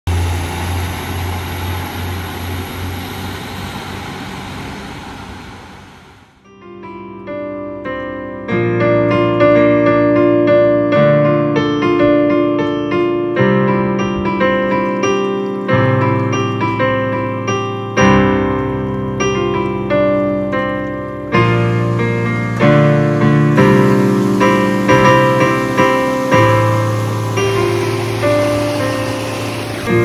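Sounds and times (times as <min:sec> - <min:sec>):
solo piano music: 0:06.4 - 0:30.0.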